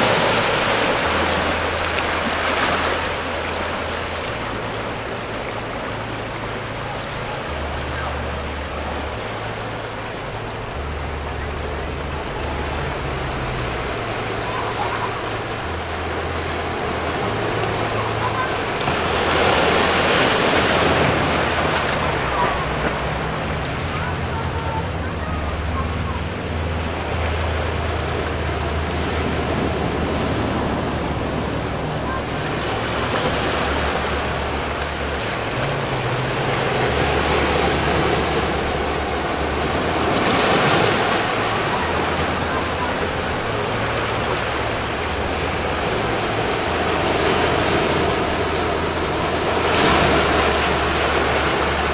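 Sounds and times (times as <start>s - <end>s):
small waves washing over rocks: 0.0s - 6.0s
waves breaking over rocks: 0.0s - 51.9s.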